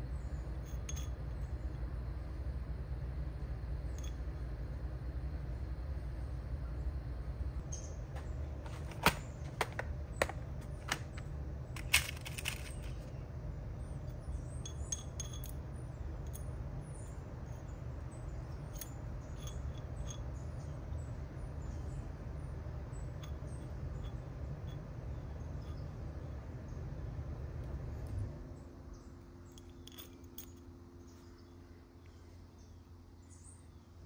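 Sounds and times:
low hum: 0.0s - 34.0s
metallic clinks of pins: 14.6s - 15.6s, 29.5s - 30.7s.

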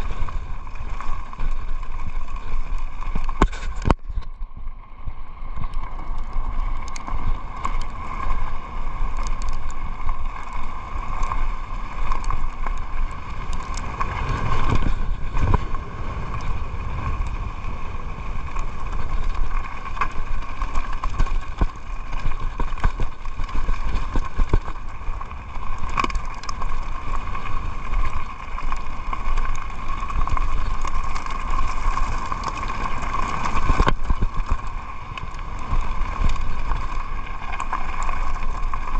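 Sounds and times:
bike knocks and rattles: 0.0s - 4.4s, 18.6s - 34.8s
tyres crunching over stones: 0.0s - 4.5s, 5.4s - 38.9s
wind buffeting microphone: 12.8s - 21.7s.

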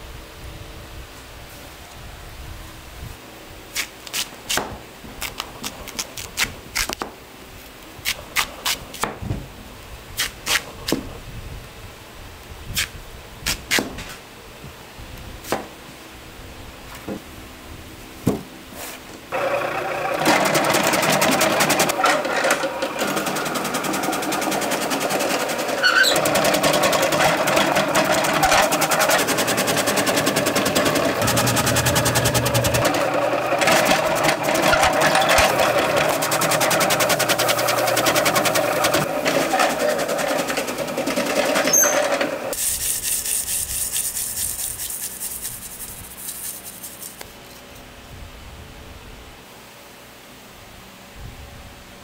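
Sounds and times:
kitchen machine rattling: 19.4s - 42.6s.

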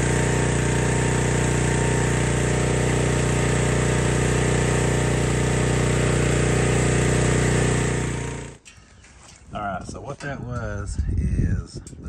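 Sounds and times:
pressure washer engine hum: 0.0s - 8.8s.

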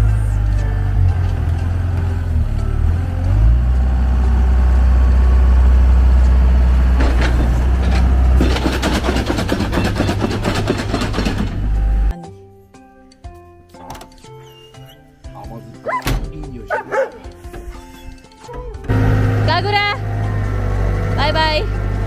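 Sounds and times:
diesel engine droning: 0.0s - 12.1s, 16.7s - 22.0s
dense rattling clatter: 6.9s - 11.8s.

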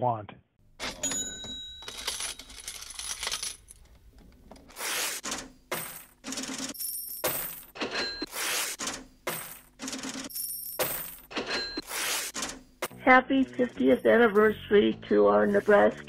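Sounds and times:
coins clinking and jingling: 0.8s - 4.0s, 4.8s - 8.7s, 9.3s - 12.6s.

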